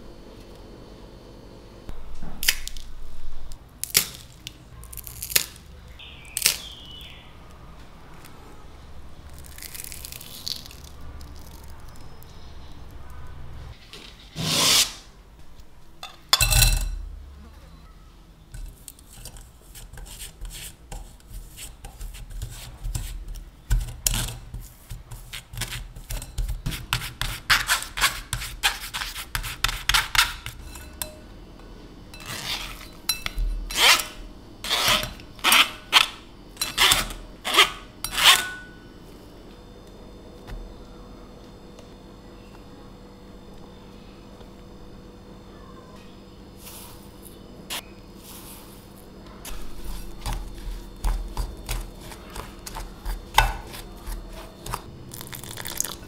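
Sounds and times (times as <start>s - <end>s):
spoon scraping metal sieve: 19.0s - 31.2s, 32.2s - 38.7s, 46.6s - 54.9s.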